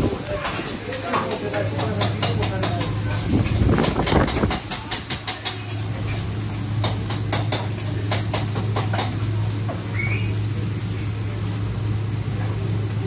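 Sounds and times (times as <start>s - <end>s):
cooking utensils tapping: 0.4s - 9.9s.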